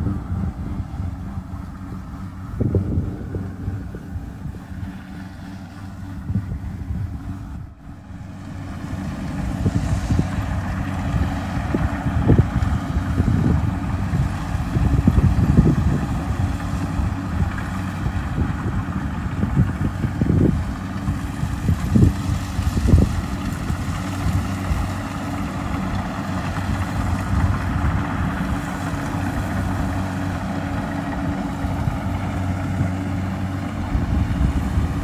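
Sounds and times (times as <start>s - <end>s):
combine harvester diesel engine: 0.0s - 35.0s
wind on microphone: 0.0s - 35.0s.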